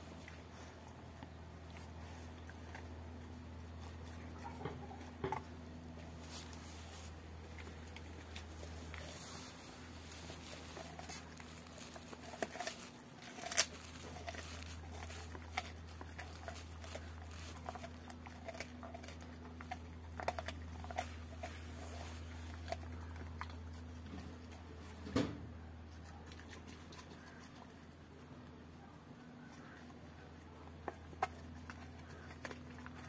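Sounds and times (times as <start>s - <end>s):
dog chewing a bone: 0.0s - 33.0s.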